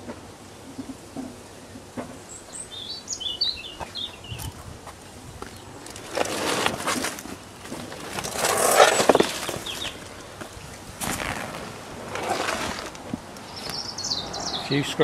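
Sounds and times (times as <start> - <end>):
plastic and fabric rustling: 5.5 - 13.8.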